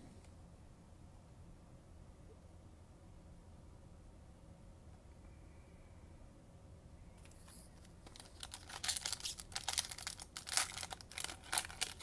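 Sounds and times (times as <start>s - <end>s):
wrapper tearing and crinkling: 8.0s - 12.0s.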